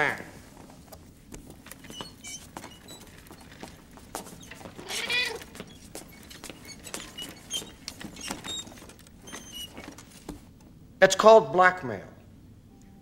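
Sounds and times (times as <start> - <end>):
cat meowing: 4.8 - 5.4.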